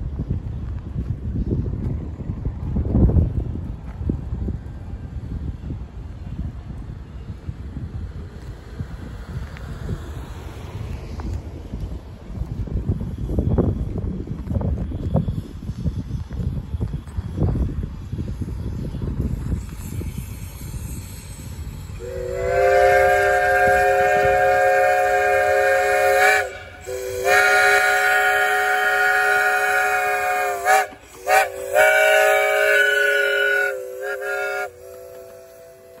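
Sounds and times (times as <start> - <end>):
steam locomotive chime whistle: 19.6 - 36.0.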